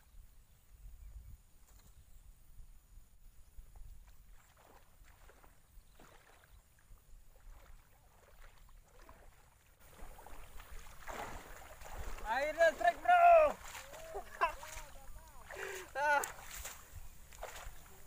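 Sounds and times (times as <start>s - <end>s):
water sloshing and splashing: 4.0s - 18.0s.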